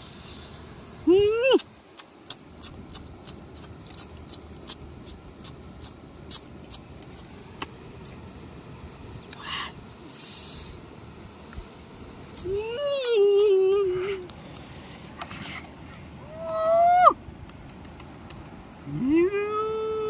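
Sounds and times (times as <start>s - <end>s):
low steady rumble: 0.0s - 20.0s
short hiss: 10.1s - 10.8s.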